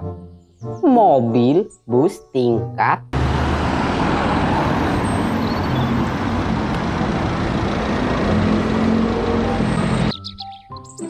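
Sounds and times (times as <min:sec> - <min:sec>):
bus engine running: 0:03.2 - 0:10.1
street traffic noise: 0:03.2 - 0:10.4.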